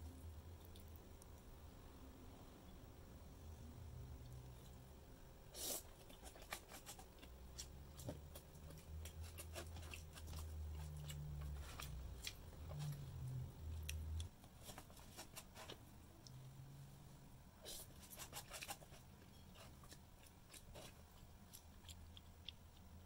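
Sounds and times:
plastic spoon scraping paper: 6.2s - 7.1s.

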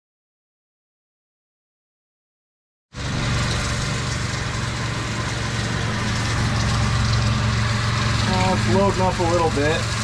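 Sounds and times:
milling machine hum: 3.0s - 10.0s.

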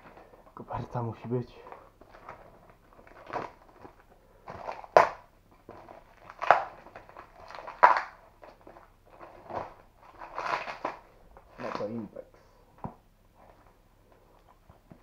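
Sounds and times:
plastic wrapping crinkling: 1.6s - 12.2s
plastic crackling sharply: 2.0s - 12.0s.

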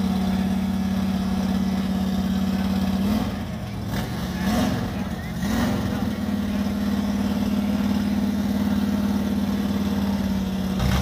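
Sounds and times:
car engine droning: 0.0s - 11.0s.

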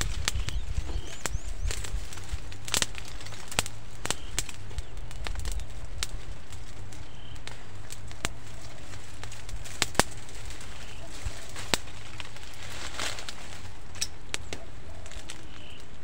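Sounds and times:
bird chirps: 0.0s - 2.3s, 3.0s - 5.9s, 6.8s - 7.7s, 10.5s - 11.6s, 14.0s - 16.0s
twigs snapping: 0.0s - 16.0s.

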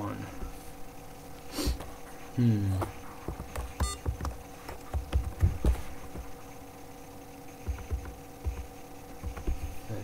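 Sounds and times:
electrical hum: 0.0s - 10.0s
keyboard typing: 3.4s - 6.3s, 7.6s - 9.7s.

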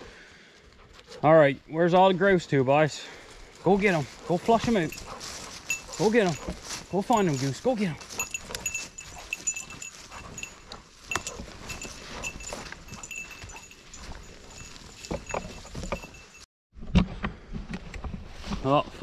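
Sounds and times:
twigs crackling underfoot: 3.1s - 16.4s
dog collar jingling: 3.6s - 16.5s.

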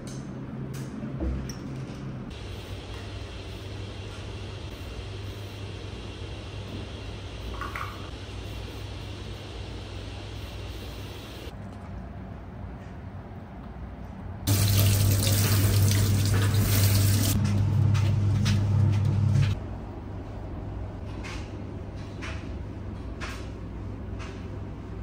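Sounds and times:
tap water splashing in sink: 14.5s - 17.4s.

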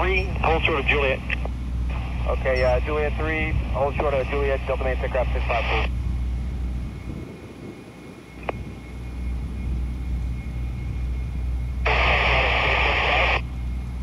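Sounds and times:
radio static hiss: 0.0s - 6.0s, 11.8s - 13.5s
jet engines rumbling: 0.0s - 14.0s.

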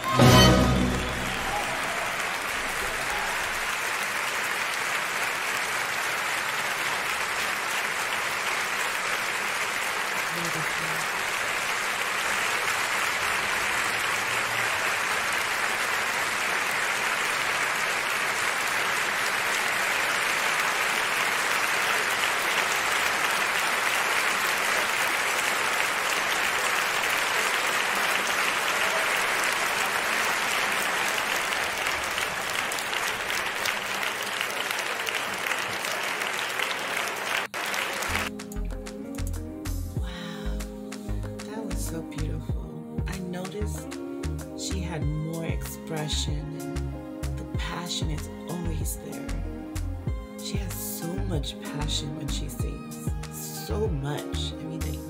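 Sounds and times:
audience applauding: 0.0s - 38.6s.

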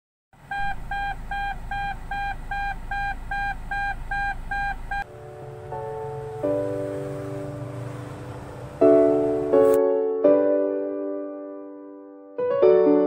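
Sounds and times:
low hum: 0.4s - 9.6s
seat belt reminder chime beeping: 0.5s - 5.0s
piano-like music: 5.0s - 13.0s.

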